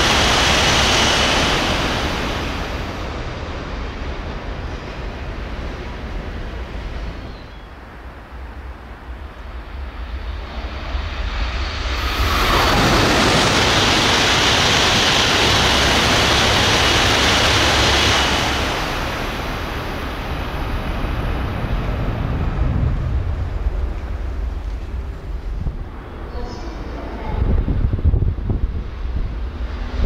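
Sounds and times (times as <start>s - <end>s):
high-speed train rushing past: 0.0s - 30.0s.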